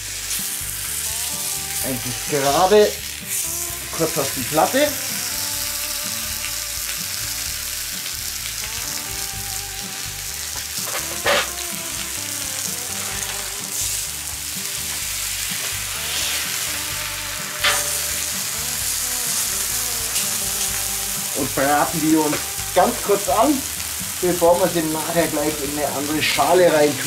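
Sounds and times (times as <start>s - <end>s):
beef sizzling on hot plate: 0.0s - 27.0s
tongs clacking on metal plate: 10.8s - 11.5s, 17.6s - 18.0s.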